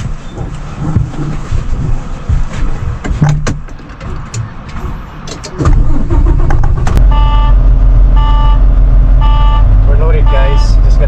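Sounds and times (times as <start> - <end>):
diesel engine rumbling: 0.0 - 11.0
electronic beeps: 7.0 - 7.6, 8.2 - 8.6, 9.2 - 11.0.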